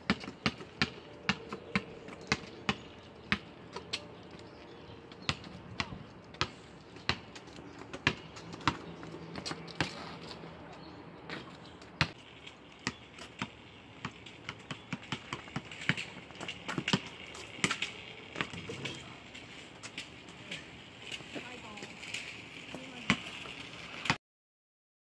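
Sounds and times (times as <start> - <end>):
basketball bouncing on concrete: 0.1 - 4.0, 5.2 - 10.4, 11.3 - 12.2, 12.8 - 19.2, 22.8 - 23.4.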